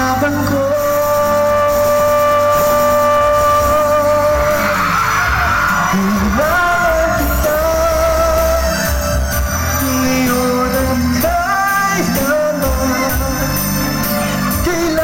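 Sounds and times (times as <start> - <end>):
amplified backing music: 0.0 - 15.0
man singing through pa: 0.0 - 15.0
crowd yelling: 2.2 - 15.0.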